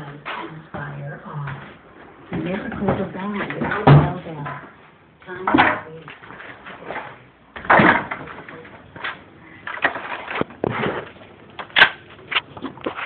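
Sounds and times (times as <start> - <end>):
wood boards knocking and clattering: 7.6 - 13.0.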